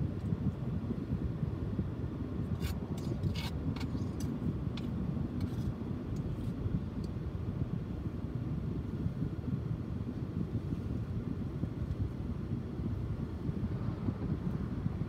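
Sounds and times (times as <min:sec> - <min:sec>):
steady low rumble: 0:00.0 - 0:15.0
small clicks and scrapes: 0:02.5 - 0:07.2.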